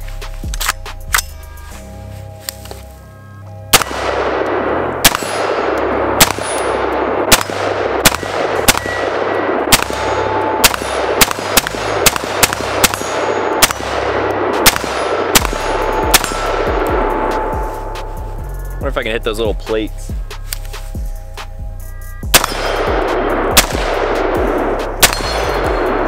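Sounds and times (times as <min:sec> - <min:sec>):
rifle shots echoing: 0:03.7 - 0:18.0, 0:22.3 - 0:26.0.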